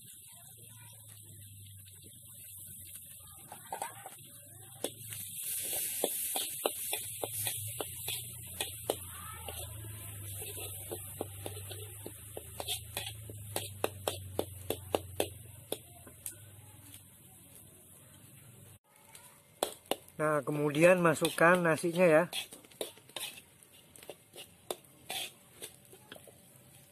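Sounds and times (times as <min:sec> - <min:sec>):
frying hiss: 0:00.0 - 0:26.9
metal spatula scraping wok: 0:02.8 - 0:15.8, 0:19.6 - 0:26.9.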